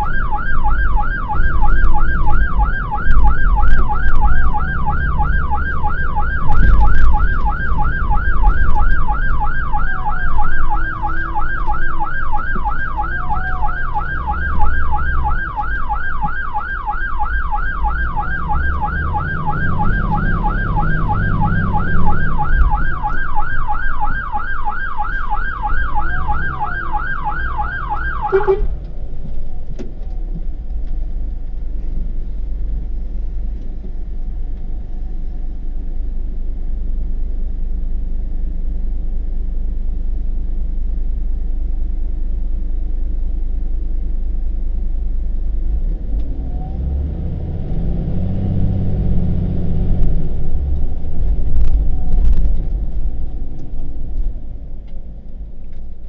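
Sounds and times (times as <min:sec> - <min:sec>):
fire engine siren yelp: 0:00.0 - 0:29.6
engine rumble: 0:00.0 - 0:56.0.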